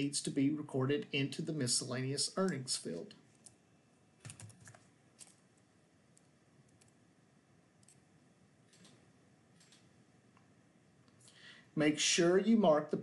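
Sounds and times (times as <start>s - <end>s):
keyboard and mouse clicks: 4.2s - 5.4s, 7.8s - 8.0s, 8.7s - 9.0s, 9.6s - 9.9s.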